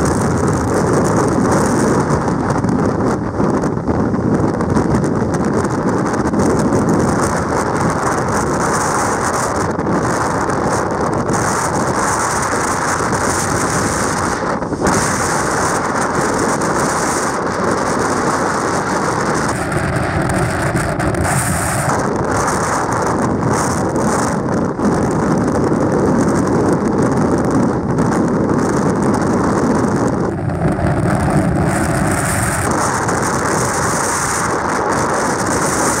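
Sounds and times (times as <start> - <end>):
strong wind buffeting microphone: 0.0 - 36.0
heavy surf on rocky shore: 9.9 - 24.9, 30.3 - 36.0.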